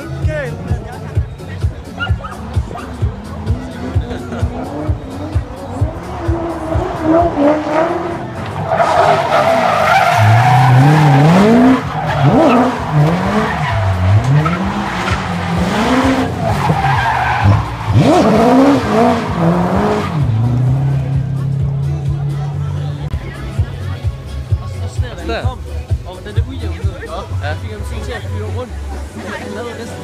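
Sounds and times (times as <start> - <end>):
car engine revving: 0.0 - 24.6
tyres squealing on asphalt: 1.0 - 21.0.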